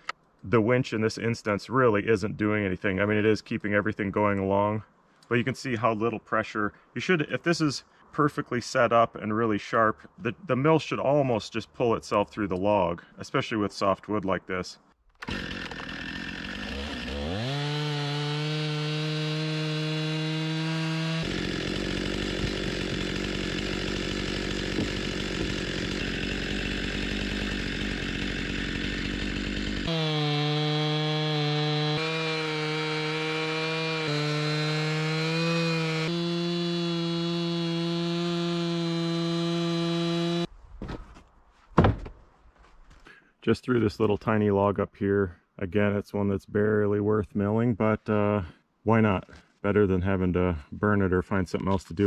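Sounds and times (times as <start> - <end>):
chainsaw cutting log: 15.2 - 40.5.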